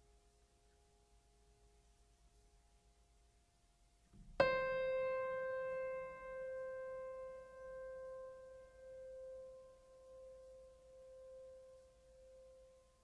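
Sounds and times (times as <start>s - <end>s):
piano note ringing: 4.4s - 11.5s.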